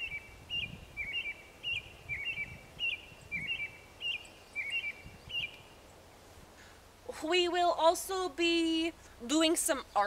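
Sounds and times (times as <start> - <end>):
wind rumble on microphone: 0.0 - 3.9, 4.6 - 5.6.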